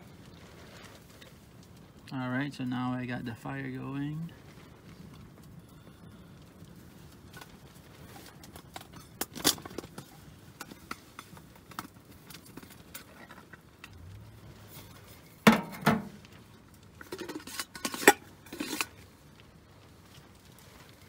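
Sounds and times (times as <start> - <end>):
fire crackling in a stove: 0.0 - 21.0.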